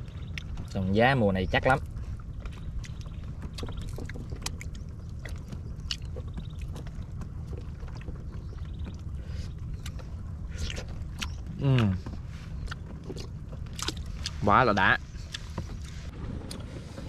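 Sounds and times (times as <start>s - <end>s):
water around a raft: 0.0s - 17.0s
wind rumble: 0.0s - 17.0s.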